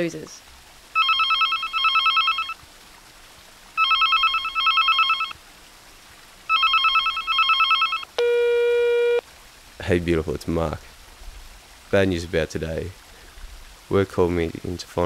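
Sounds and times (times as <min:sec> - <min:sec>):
telephone ringing: 0:01.0 - 0:02.6, 0:03.8 - 0:05.4, 0:06.5 - 0:09.2
voicemail beep: 0:03.8 - 0:05.3, 0:06.5 - 0:09.2.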